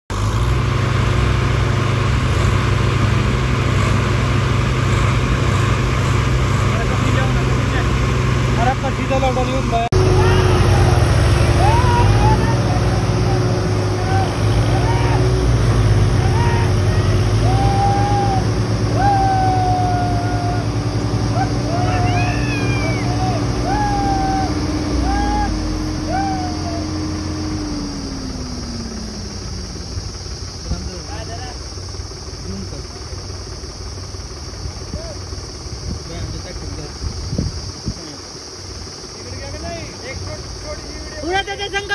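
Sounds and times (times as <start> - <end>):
diesel tractor engines under load: 0.1 - 41.9
short pitched calls: 10.0 - 29.7.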